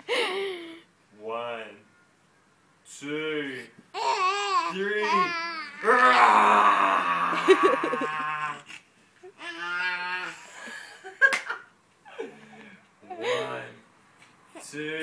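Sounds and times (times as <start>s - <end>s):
baby growling: 4.0s - 10.7s
man growling playfully: 5.0s - 8.7s.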